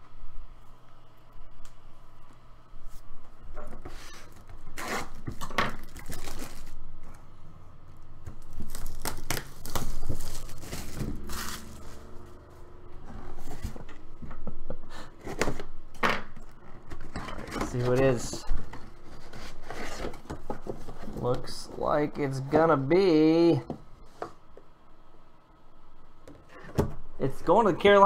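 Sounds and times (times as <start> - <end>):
shrink-wrap ripping and crinkling: 4.3 - 6.8, 8.4 - 12.1.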